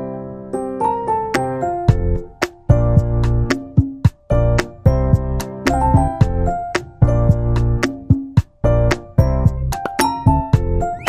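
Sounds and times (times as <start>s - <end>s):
light bouncy background music: 0.0s - 11.0s.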